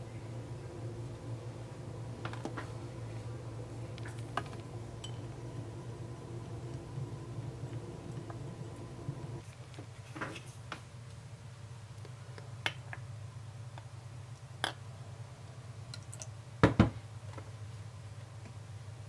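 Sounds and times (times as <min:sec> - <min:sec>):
steady low hum: 0:00.0 - 0:09.5.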